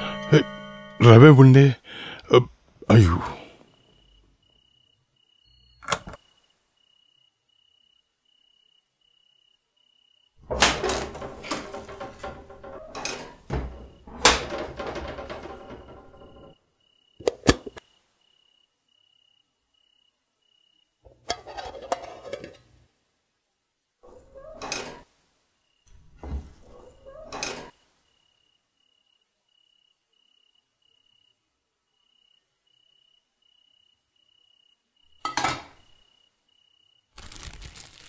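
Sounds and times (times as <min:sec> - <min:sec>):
cricket chirping: 0:03.4 - 0:38.0
metal tins and lids clanking: 0:10.4 - 0:16.5, 0:17.2 - 0:17.8, 0:21.1 - 0:22.6, 0:35.2 - 0:35.8
cupboard doors opening: 0:10.4 - 0:16.6, 0:26.0 - 0:27.7.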